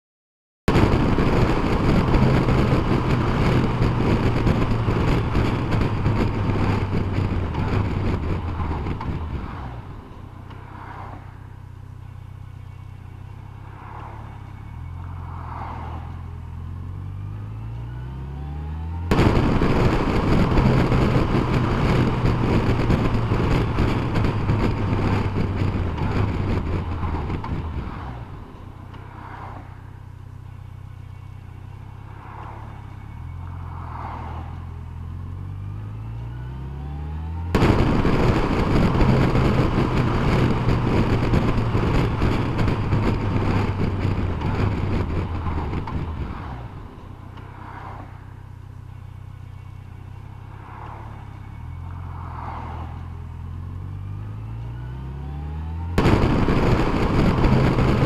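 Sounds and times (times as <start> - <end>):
wind rush: 0.7 - 10.1, 19.1 - 28.5, 37.5 - 47.0, 56.0 - 58.0
motorcycle engine: 0.7 - 10.6, 16.3 - 29.4, 34.7 - 48.0, 53.2 - 58.0.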